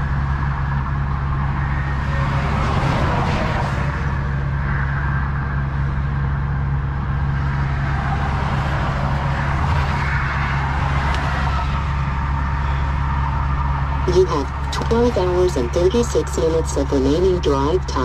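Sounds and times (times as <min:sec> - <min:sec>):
highway traffic passing: 0:00.0 - 0:18.0
diesel truck engine idling: 0:10.6 - 0:18.0.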